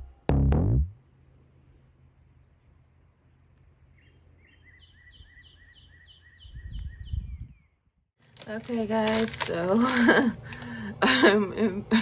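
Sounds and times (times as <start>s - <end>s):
small bird chirping: 2.4s - 7.9s.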